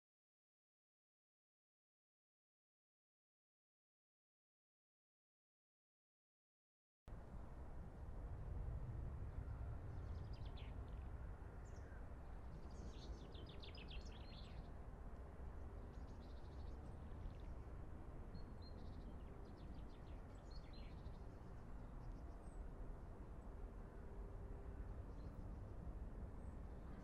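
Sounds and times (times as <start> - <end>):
faint low background rumble: 7.1 - 27.0
small songbirds chirping: 9.8 - 14.9, 15.5 - 22.7.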